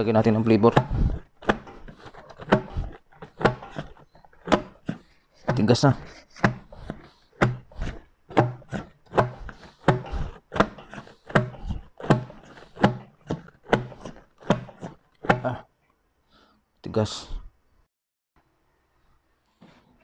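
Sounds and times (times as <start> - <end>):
metal canister churning in ice: 0.0 - 15.0
paddle knocking and scraping: 0.0 - 15.6.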